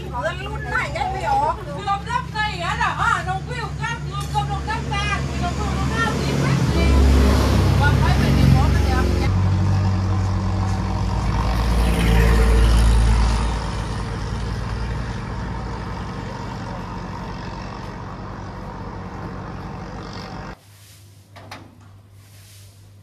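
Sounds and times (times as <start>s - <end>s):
truck engine idling: 13.0s - 20.6s.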